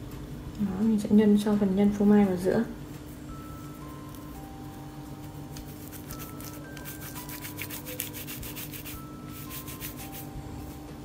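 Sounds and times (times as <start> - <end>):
soft background melody: 0.0 - 11.0
hands rubbing dough: 5.6 - 10.2.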